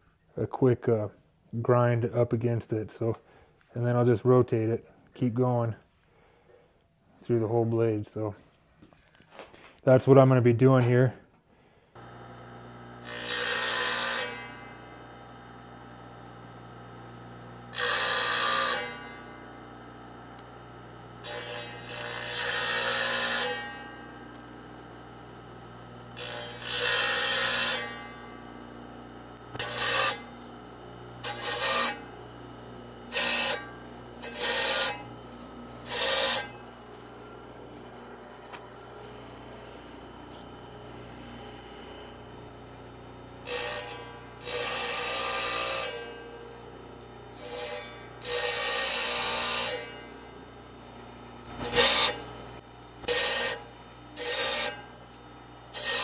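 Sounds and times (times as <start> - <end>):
table saw humming: 12.0 - 56.0
saw teeth grinding rasps: 21.2 - 23.7, 26.2 - 28.0, 29.5 - 30.4, 31.2 - 32.1, 33.1 - 35.1, 35.8 - 36.8, 43.4 - 46.1, 51.6 - 52.2, 53.1 - 53.6, 54.2 - 54.9, 55.8 - 56.0.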